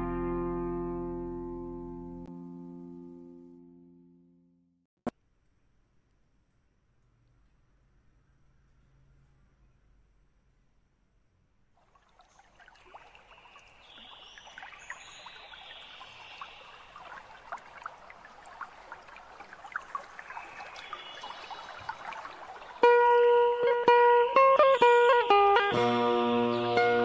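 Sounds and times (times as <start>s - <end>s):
plucked guitar music: 0.0s - 4.5s, 22.8s - 27.0s.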